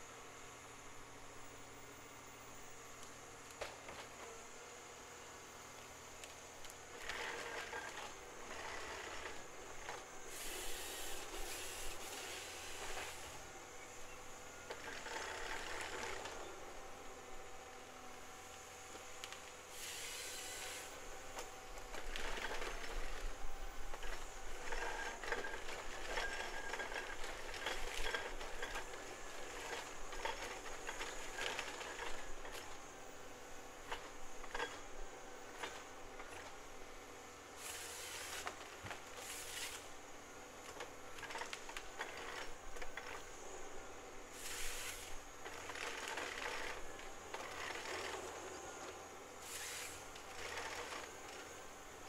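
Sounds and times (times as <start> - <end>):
diesel engine under load: 6.9 - 17.9, 37.6 - 51.7
intermittent hissing: 37.6 - 52.0.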